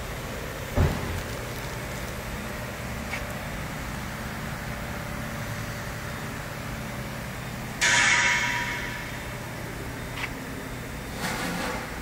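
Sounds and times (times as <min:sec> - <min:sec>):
sharp knock: 0:07.8 - 0:09.2.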